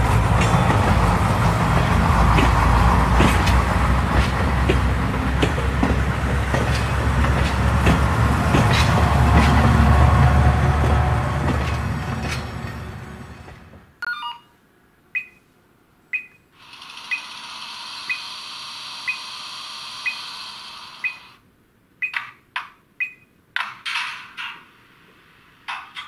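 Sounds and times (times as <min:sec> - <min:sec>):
falling run of electronic tones: 0:18.0 - 0:21.4
steady hiss: 0:24.3 - 0:26.0.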